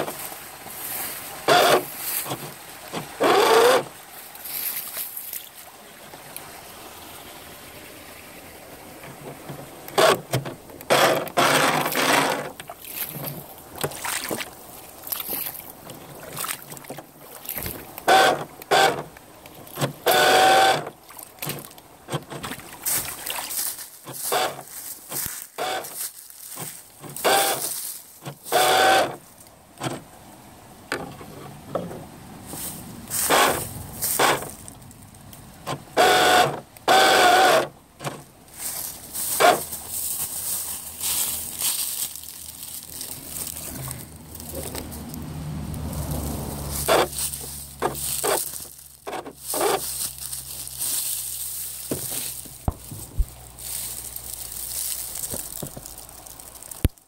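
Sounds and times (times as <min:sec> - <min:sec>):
water churning: 0:00.0 - 0:25.9, 0:35.4 - 0:49.8
electric motor whine: 0:03.2 - 0:03.9, 0:20.0 - 0:20.9, 0:28.5 - 0:29.2, 0:36.0 - 0:37.8.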